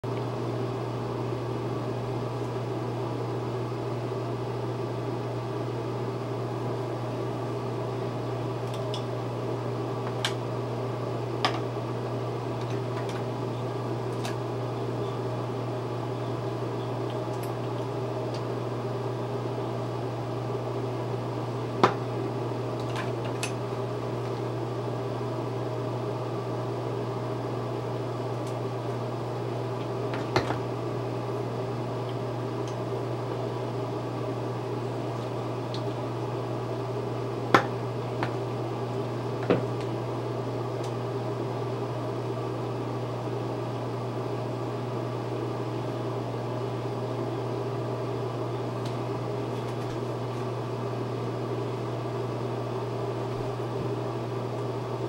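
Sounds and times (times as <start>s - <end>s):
fan motor humming: 0.0s - 55.0s.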